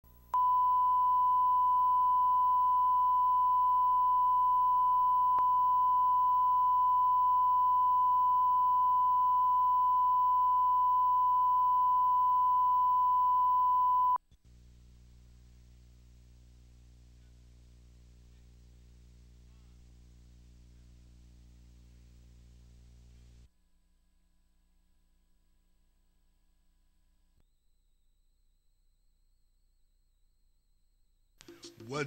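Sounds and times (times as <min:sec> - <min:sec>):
steady test tone: 0:00.0 - 0:14.2
faint low hum: 0:00.0 - 0:31.2.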